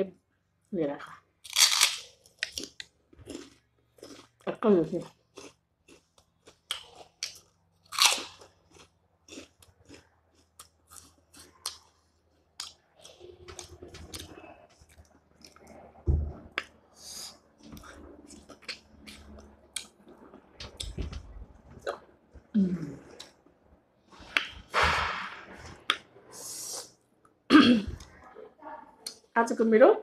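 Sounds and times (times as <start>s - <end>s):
crunchy bites and chewing: 1.4s - 4.4s, 5.0s - 15.6s.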